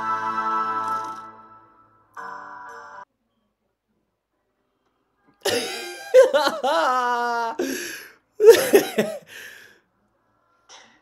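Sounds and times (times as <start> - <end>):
man laughing: 5.5 - 9.3.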